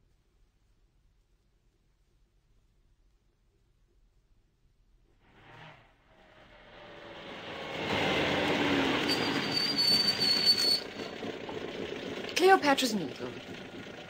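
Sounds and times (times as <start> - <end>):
car driving: 5.2 - 14.0
thin high squeal: 8.9 - 11.1.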